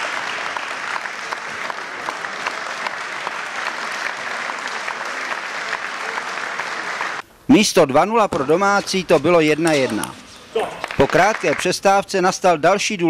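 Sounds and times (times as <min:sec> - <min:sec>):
audience applauding: 0:00.0 - 0:07.2, 0:10.8 - 0:11.8.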